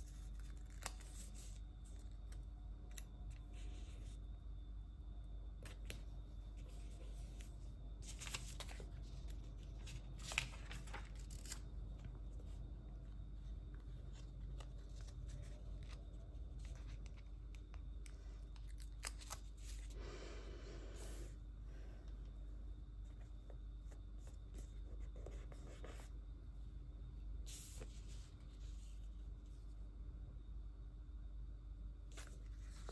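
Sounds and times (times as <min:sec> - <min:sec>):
steady low hum: 0:00.0 - 0:32.9
paper rustles: 0:06.6 - 0:11.6.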